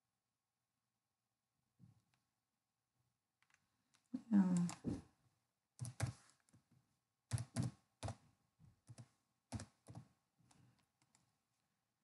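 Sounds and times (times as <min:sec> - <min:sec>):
keyboard keystrokes: 0:05.8 - 0:06.5, 0:07.3 - 0:08.2, 0:08.8 - 0:10.1.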